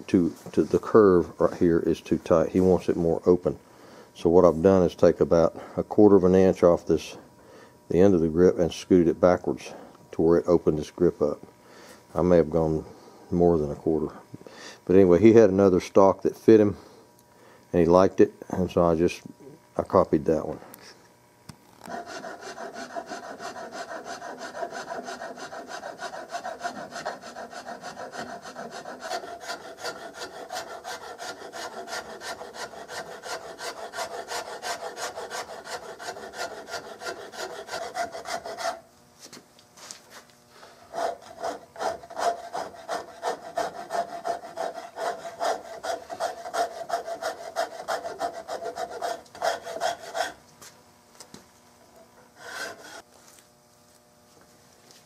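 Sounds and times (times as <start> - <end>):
hand file rasping on wood: 21.9 - 38.8, 40.9 - 50.4, 52.4 - 53.0.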